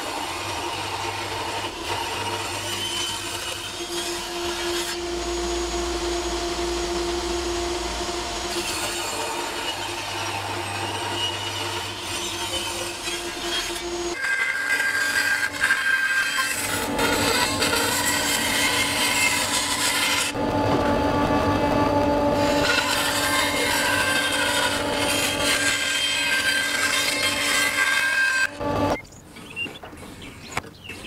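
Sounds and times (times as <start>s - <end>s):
bandsaw cutting wood: 0.0s - 29.0s
table saw cutting wood: 0.0s - 29.0s
low hum: 3.8s - 11.9s, 20.4s - 22.7s.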